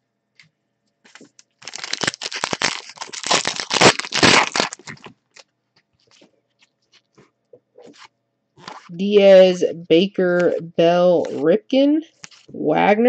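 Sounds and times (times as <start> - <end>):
foil wrapper tearing and crinkling: 1.1 - 6.2, 8.0 - 8.9.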